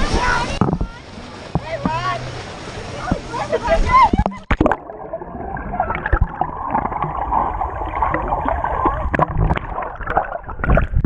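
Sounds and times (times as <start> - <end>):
underwater churning and bubbling: 0.0 - 11.0
dull underwater knocks: 0.5 - 2.2, 5.9 - 11.0.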